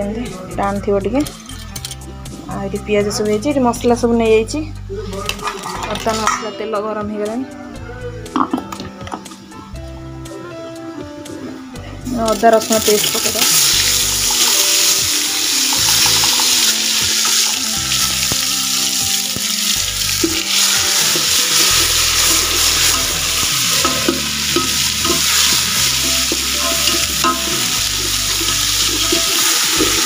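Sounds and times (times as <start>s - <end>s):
paste sizzling in hot oil: 12.3s - 30.0s.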